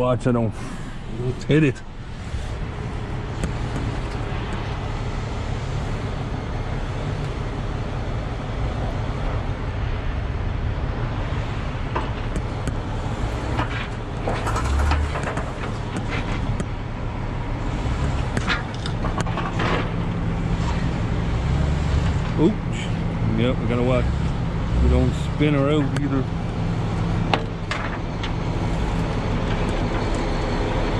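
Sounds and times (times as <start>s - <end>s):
car engine running at low speed: 0.0s - 30.9s
knocks and clatter: 11.9s - 16.8s, 18.1s - 21.0s, 27.2s - 28.5s.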